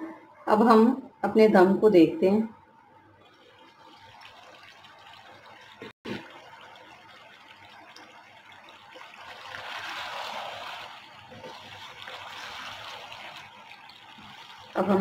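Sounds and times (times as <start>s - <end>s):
food simmering with bubbling hiss: 2.6s - 15.0s
wooden spatula stirring: 7.7s - 15.0s.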